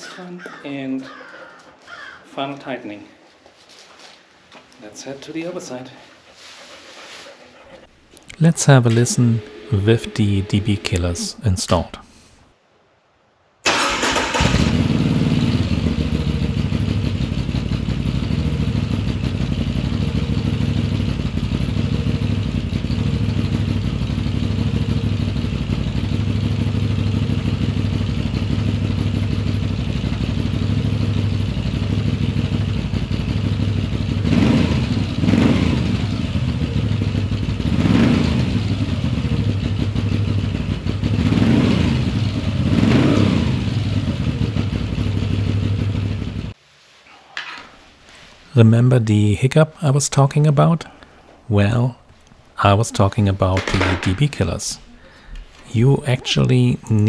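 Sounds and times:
motorcycle throttle revving: 13.7s - 46.5s
motorcycle engine idling: 13.8s - 46.5s.

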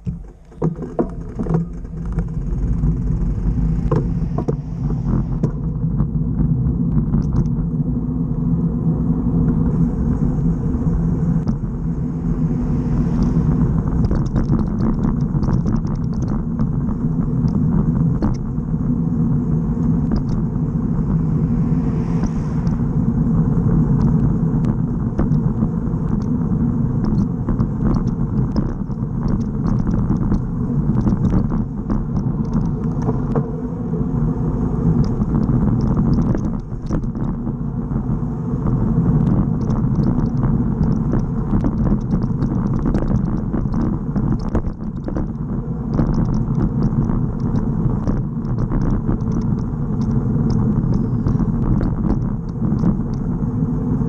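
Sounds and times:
bicycle tyre noise on asphalt: 0.0s - 54.0s
wind buffeting: 0.0s - 54.0s
small ticks from bumps: 6.9s - 7.6s, 14.0s - 16.8s, 17.4s - 18.5s, 20.0s - 20.4s, 24.0s - 26.4s, 27.0s - 33.4s, 35.0s - 37.4s, 39.2s - 53.3s.

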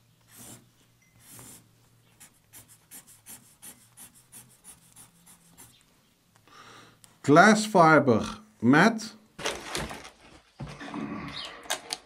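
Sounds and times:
marker pen drawing on paper: 0.0s - 5.8s.

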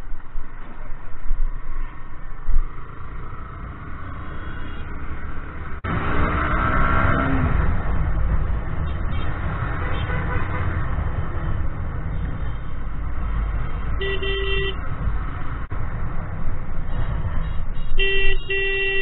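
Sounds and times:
wind: 0.0s - 19.0s
vehicle horn honking: 4.3s - 4.9s, 9.8s - 10.7s, 14.0s - 14.8s, 17.8s - 19.0s.

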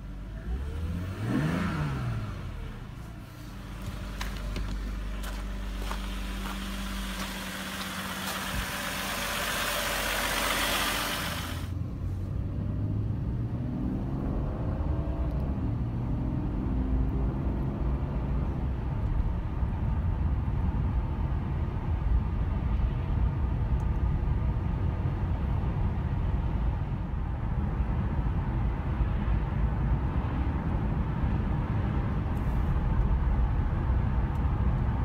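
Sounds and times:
car engine low rumble: 0.0s - 35.0s
tyre and road noise: 0.0s - 35.0s.

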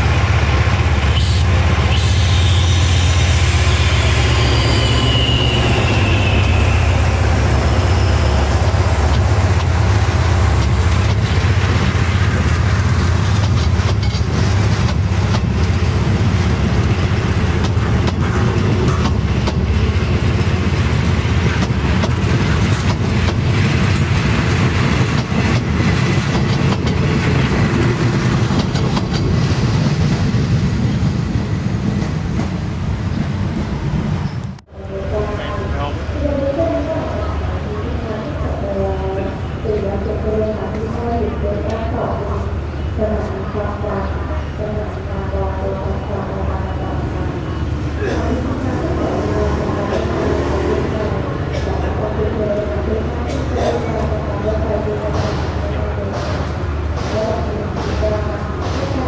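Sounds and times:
locomotive engine droning: 0.0s - 32.0s
train wheels clicking over rail joints: 8.3s - 30.4s, 54.9s - 59.0s.

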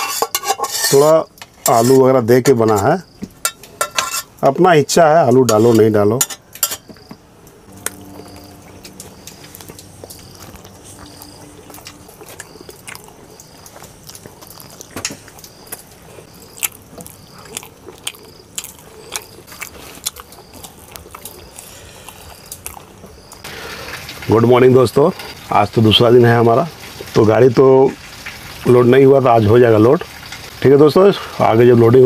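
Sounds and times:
man chewing food: 6.4s - 24.2s
faint high chirp: 6.8s - 13.6s.

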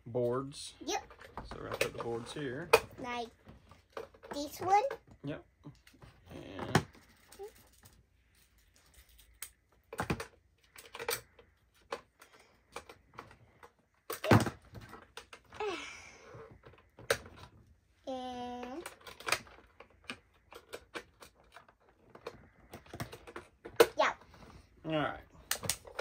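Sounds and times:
plastic toy pieces clicking: 9.0s - 13.4s, 18.4s - 24.0s.

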